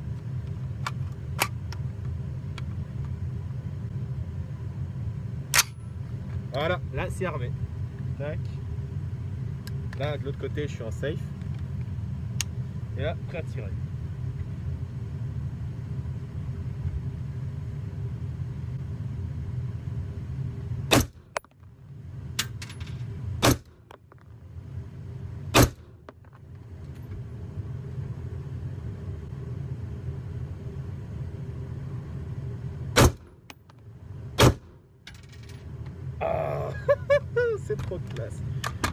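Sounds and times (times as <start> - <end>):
steady low rumble: 0.0 - 38.9
rifle shots: 20.9 - 21.2, 23.4 - 23.7, 25.5 - 25.9, 33.0 - 33.3, 34.4 - 34.7.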